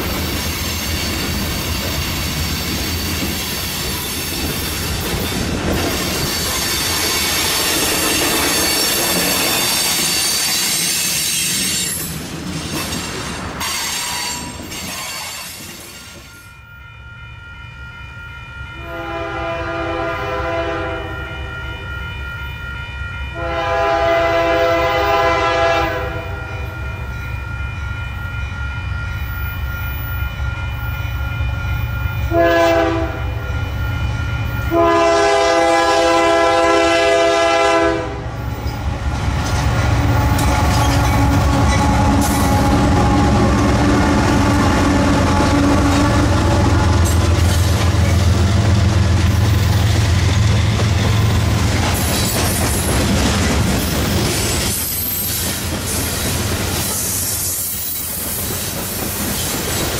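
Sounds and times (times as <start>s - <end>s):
train wheels rumbling and squealing: 0.0s - 59.9s
locomotive air horn blasts: 18.2s - 27.0s, 32.3s - 33.8s, 34.6s - 38.5s, 40.1s - 47.2s
locomotive engine rumble: 34.0s - 54.4s.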